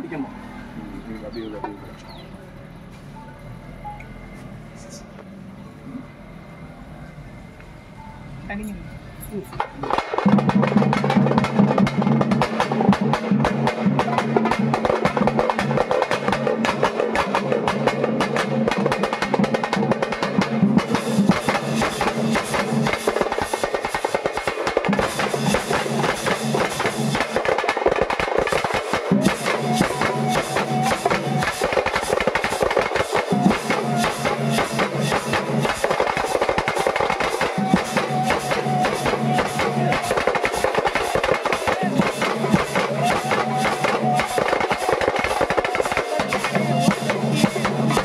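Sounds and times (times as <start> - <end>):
sustained low tone: 0.5 - 9.6
fast continuous drumming: 9.6 - 48.0.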